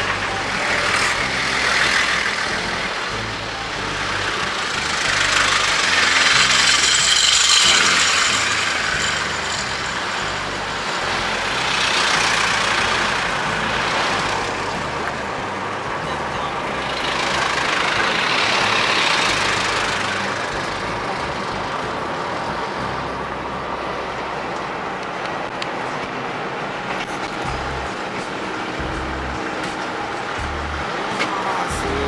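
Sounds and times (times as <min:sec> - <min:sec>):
trucks driving past: 0:00.0 - 0:32.0.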